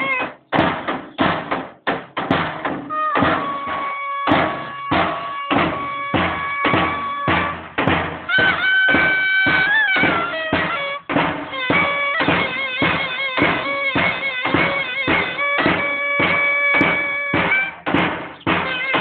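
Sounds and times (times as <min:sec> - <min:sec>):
drum beating steadily: 0:00.0 - 0:19.0
clarinet holding long notes: 0:02.9 - 0:07.6, 0:08.3 - 0:17.9, 0:18.6 - 0:19.0.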